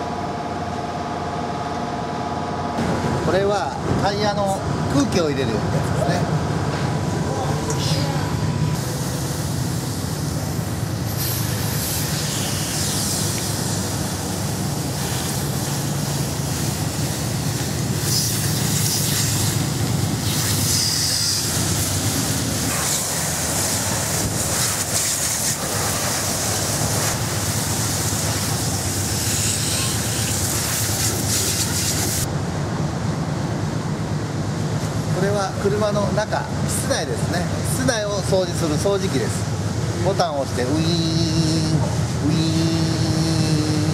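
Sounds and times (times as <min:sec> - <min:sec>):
low machine hum: 0:00.0 - 0:31.3, 0:32.1 - 0:43.9
water hissing from hose: 0:08.8 - 0:32.3.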